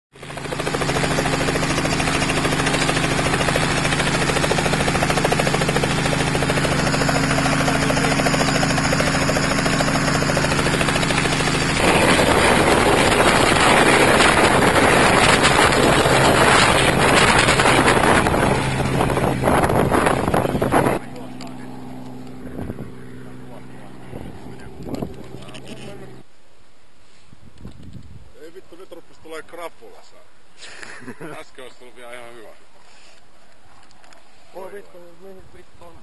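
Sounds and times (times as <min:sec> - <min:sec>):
helicopter rotor and engine hum: 0:00.1 - 0:26.3
helicopter rushing past: 0:00.2 - 0:26.3.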